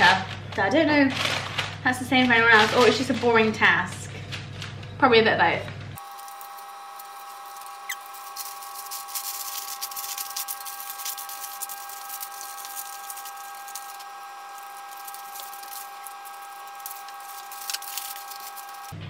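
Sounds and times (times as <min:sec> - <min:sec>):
paper crinkling: 0:00.0 - 0:04.9, 0:06.0 - 0:19.0
steady high hum: 0:06.0 - 0:19.0.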